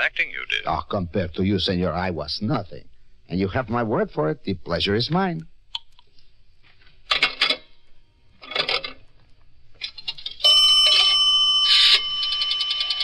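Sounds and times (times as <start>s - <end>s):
electric telephone bell ringing: 10.4s - 13.0s.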